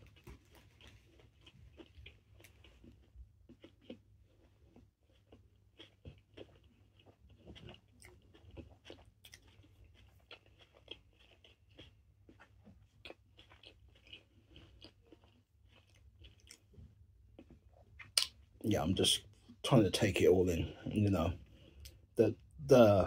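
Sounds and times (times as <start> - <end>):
faint chewing of sandwich: 0.0 - 23.0
wet mouth clicks: 17.4 - 18.4.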